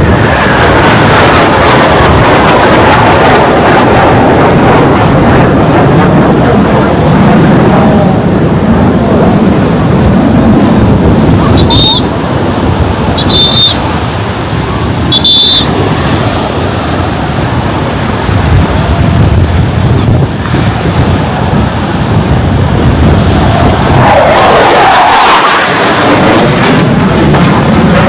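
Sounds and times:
surf on a beach: 0.0 - 28.0
wind buffeting microphone: 0.0 - 28.0
short shrill tones: 13.2 - 13.8.

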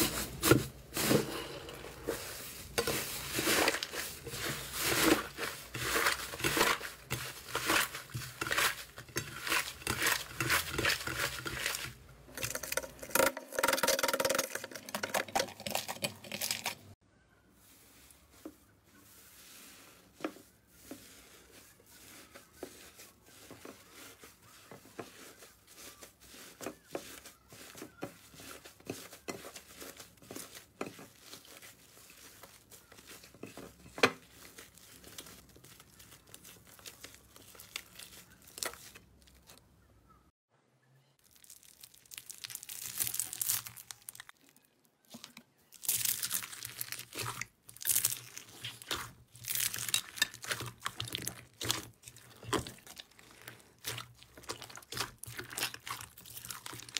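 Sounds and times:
crunching of beaded slime: 2.5 - 16.9, 21.4 - 39.6, 41.2 - 56.9
slime being kneaded: 45.2 - 56.9.

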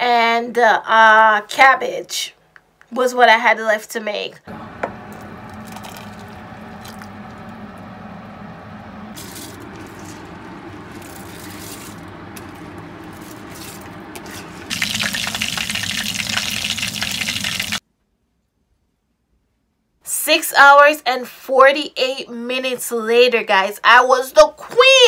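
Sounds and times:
liquid pouring into pot: 5.1 - 7.4, 13.6 - 17.8.

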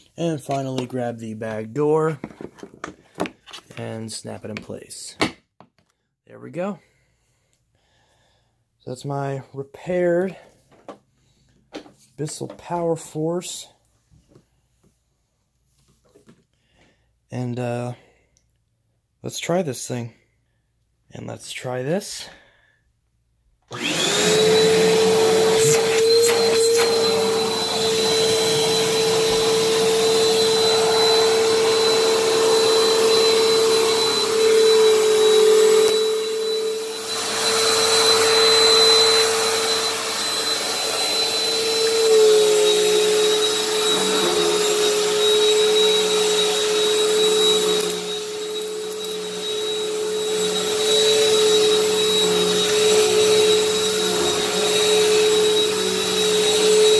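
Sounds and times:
vacuum cleaner running: 23.7 - 56.9.

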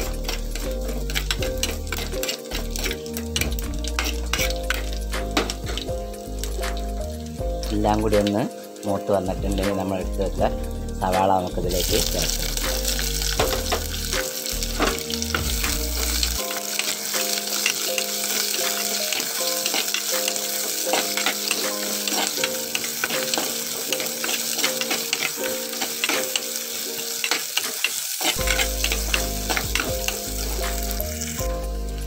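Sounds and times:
steel spoon clicking and scraping: 0.0 - 5.9, 16.0 - 30.2
onions sizzling in oil: 0.0 - 32.0.

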